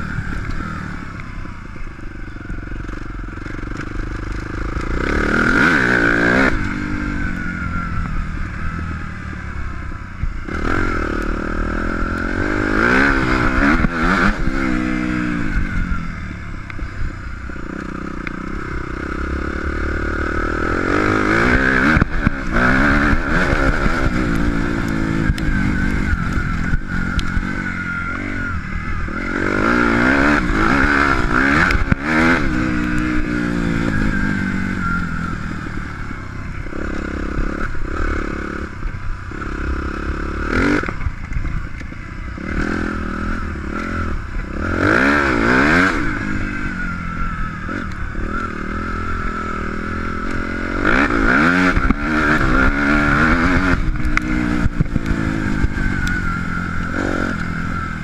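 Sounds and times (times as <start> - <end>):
motocross bike engine revving: 0.0 - 58.0.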